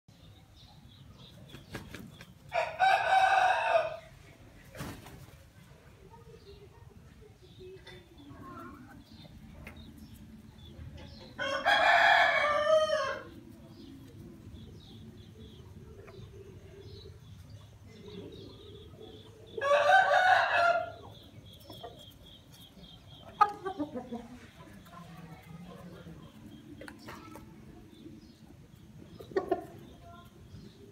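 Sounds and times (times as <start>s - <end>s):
rooster crowing: 2.5s - 4.0s, 11.4s - 13.3s, 19.6s - 21.0s
faint hen clucking: 6.1s - 30.9s.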